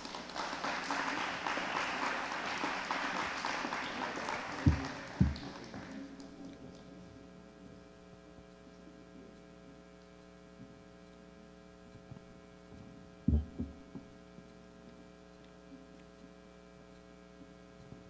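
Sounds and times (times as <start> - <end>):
electrical mains hum: 0.0 - 18.0
low handling thumps: 13.3 - 14.1.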